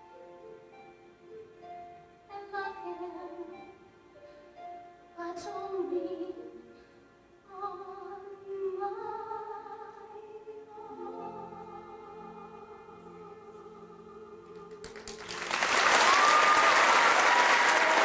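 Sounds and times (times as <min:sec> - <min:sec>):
audience applause: 0:14.8 - 0:18.0.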